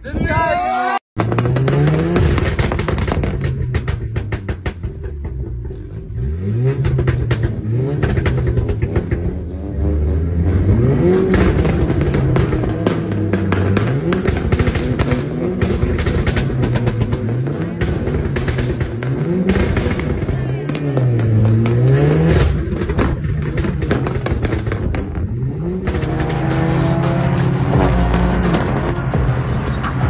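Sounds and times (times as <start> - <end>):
car engine revving: 1.2 - 30.0
music: 27.0 - 30.0.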